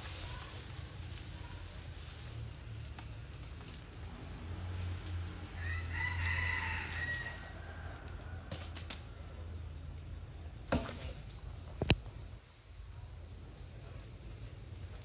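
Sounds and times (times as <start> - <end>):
rooster crowing: 5.6 - 9.3.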